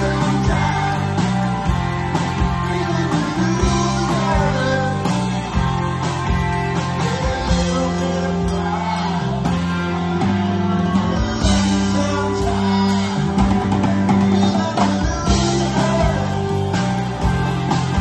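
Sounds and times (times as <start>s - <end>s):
male lead vocal singing: 0.0s - 5.8s, 6.8s - 16.7s
bass and drums: 0.0s - 18.0s
electric guitars: 0.0s - 18.0s.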